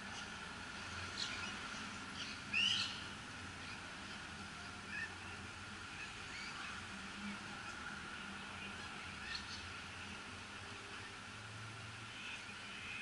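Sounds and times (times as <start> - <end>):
faint background hum: 0.0 - 13.0
birds chirping: 0.1 - 4.2.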